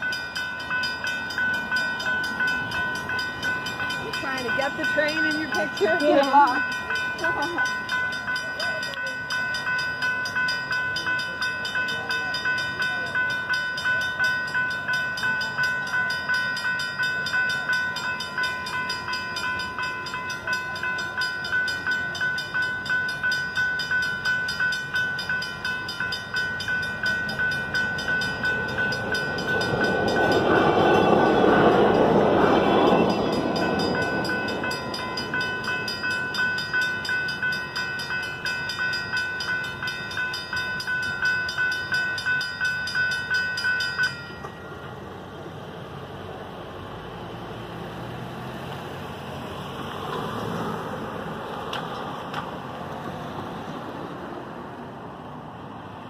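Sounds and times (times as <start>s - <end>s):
railroad crossing bell ringing: 0.0s - 56.0s
passing vehicle rushing: 27.1s - 36.3s, 45.0s - 56.0s.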